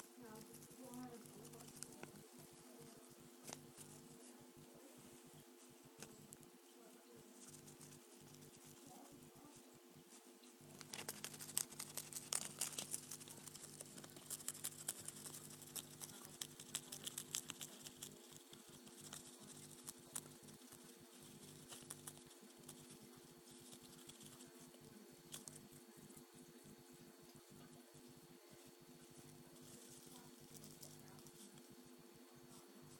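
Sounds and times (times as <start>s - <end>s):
newspaper crackling and rustling: 10.8s - 18.1s.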